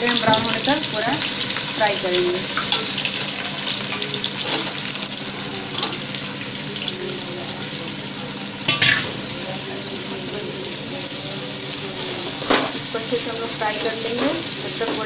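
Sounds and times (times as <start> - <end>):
onions sizzling in pot: 0.0 - 15.0.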